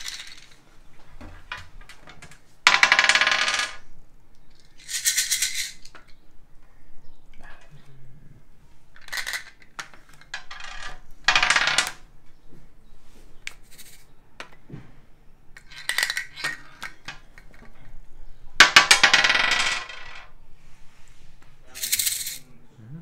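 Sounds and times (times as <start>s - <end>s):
sound cubes rattling: 0.0s - 0.6s, 2.7s - 3.8s, 4.6s - 6.0s, 9.0s - 12.0s, 15.6s - 17.7s, 18.6s - 20.3s, 21.7s - 22.4s.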